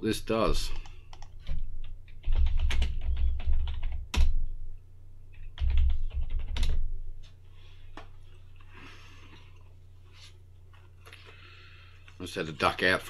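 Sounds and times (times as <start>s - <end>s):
keyboard typing: 0.7s - 4.3s.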